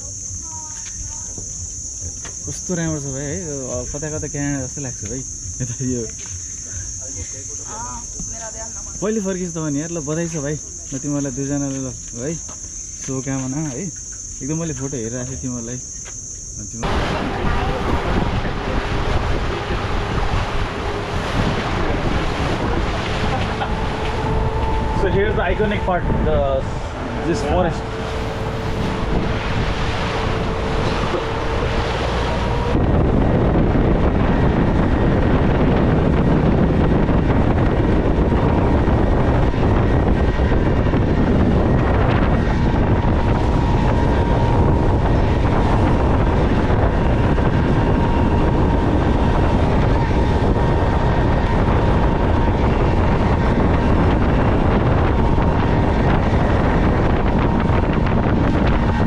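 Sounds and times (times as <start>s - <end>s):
wind buffeting microphone: 0.0s - 59.0s
outboard motor running: 16.8s - 59.0s
water rushing past hull: 16.8s - 59.0s.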